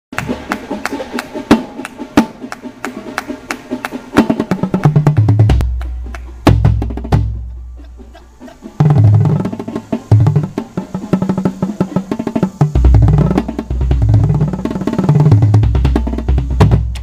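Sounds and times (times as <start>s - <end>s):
tuned bass drums playing: 4.4s - 17.0s.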